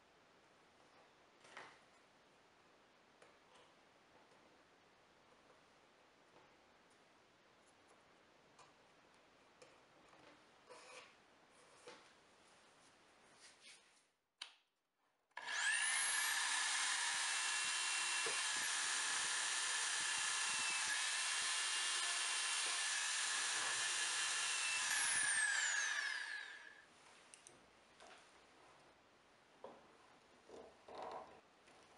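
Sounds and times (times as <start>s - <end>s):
electric drill whining: 15.4s - 26.8s.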